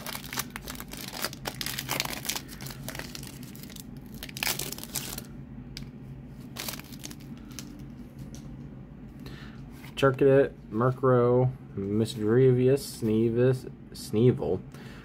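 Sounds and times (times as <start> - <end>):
foil wrapper crinkling: 0.0 - 5.3, 6.4 - 7.8.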